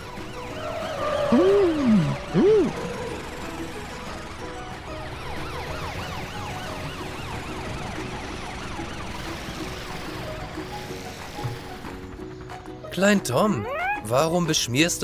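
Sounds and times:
cartoon emergency siren: 0.0s - 10.4s, 13.6s - 14.2s.

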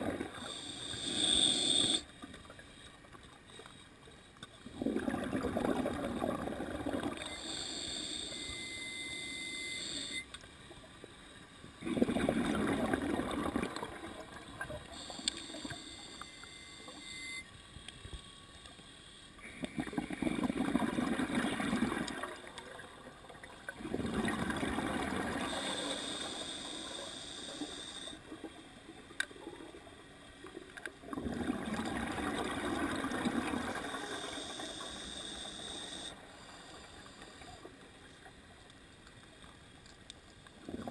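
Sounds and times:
hissing regulator inhalations: 0.4s - 2.1s, 7.2s - 10.3s, 14.8s - 17.4s, 25.4s - 28.2s, 33.8s - 37.6s
bubbling exhaled air: 4.7s - 8.0s, 11.8s - 15.1s, 19.4s - 22.4s, 23.8s - 27.0s.

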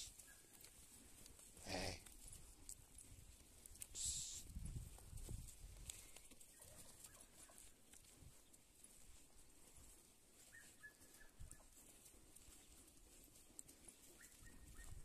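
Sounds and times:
faint ticks: 5.8s - 6.4s.

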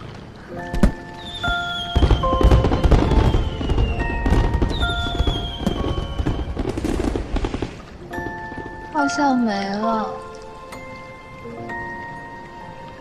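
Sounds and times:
fireworks crackling and booming: 0.0s - 10.0s
soft background music: 0.0s - 13.0s.

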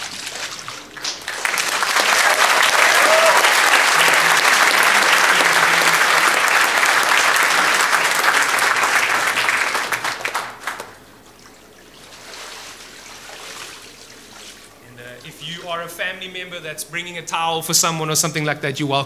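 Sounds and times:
crowd applauding: 0.8s - 11.0s.

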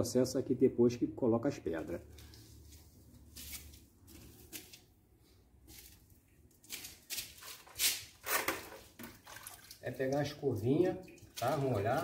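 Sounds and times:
handling and rustling noises: 1.8s - 10.2s
brush swishing in water: 2.0s - 4.8s, 8.7s - 12.0s.

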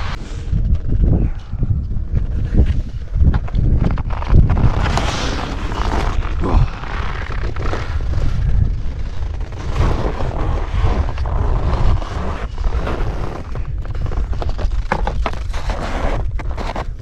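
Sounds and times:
wind buffeting microphone: 0.0s - 17.0s
ski edges scraping snow and rock: 2.1s - 17.0s.

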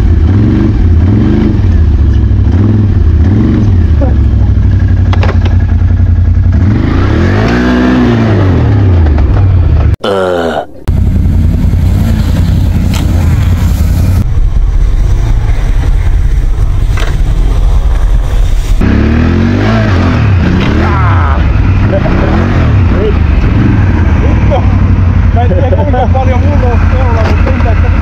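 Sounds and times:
atv engines revving: 0.0s - 28.0s.

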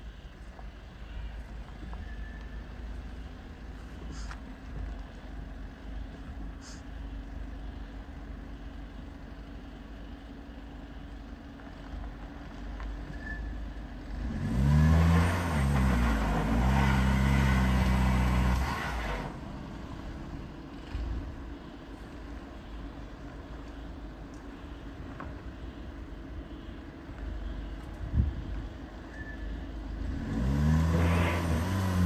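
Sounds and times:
car engine revving: 14.1s - 21.0s, 30.0s - 32.0s
tyres spinning on loose dirt: 14.6s - 21.5s.

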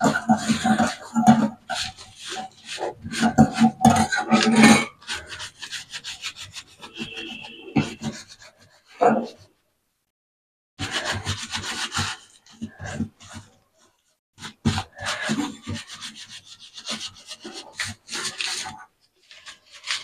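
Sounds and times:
scrubbing metal mesh filter: 0.0s - 9.0s, 14.4s - 20.0s.

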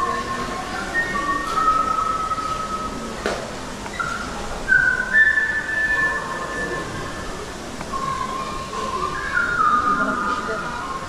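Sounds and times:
high whistle-like melody: 0.0s - 3.1s, 3.9s - 10.9s.

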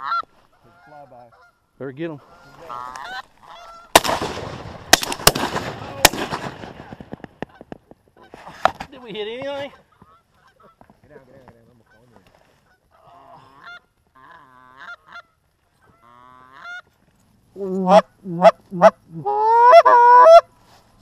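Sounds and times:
goose clucking: 2.2s - 4.0s, 9.6s - 11.0s, 11.7s - 16.9s
goose honking: 2.2s - 4.0s, 11.8s - 16.9s.

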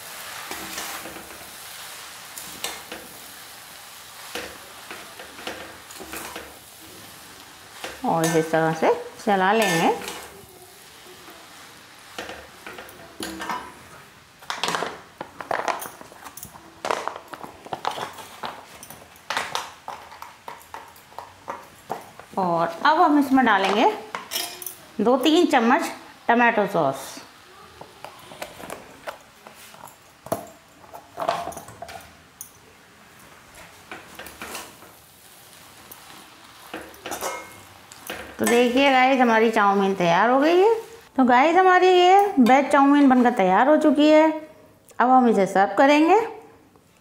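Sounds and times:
faint steady hiss: 0.0s - 47.0s
metal spatula scraping a pan: 0.1s - 3.2s, 4.2s - 14.9s, 33.6s - 40.1s
metal utensils clinking: 4.2s - 22.2s, 23.3s - 25.4s, 28.3s - 35.0s, 35.6s - 40.7s
kitchen handling clicks and knocks: 12.2s - 13.8s, 14.4s - 22.3s.

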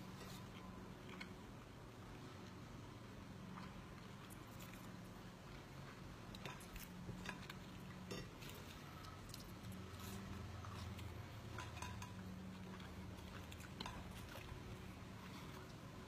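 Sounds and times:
low steady hum: 0.0s - 16.0s
person chewing food: 0.0s - 16.0s.

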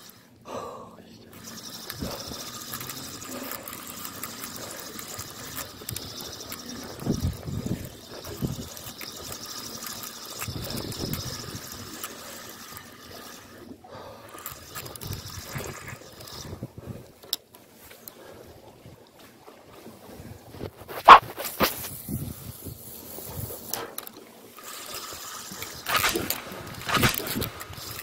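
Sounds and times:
wind buffeting microphone: 6.9s - 9.3s, 21.9s - 23.7s.

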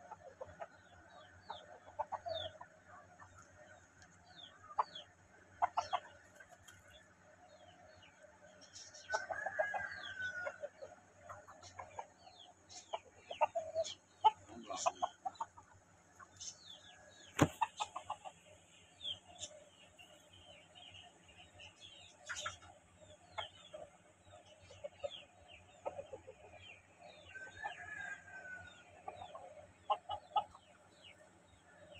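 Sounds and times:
chickens clucking and calling: 0.0s - 31.9s
sharp knock: 17.4s - 17.6s.

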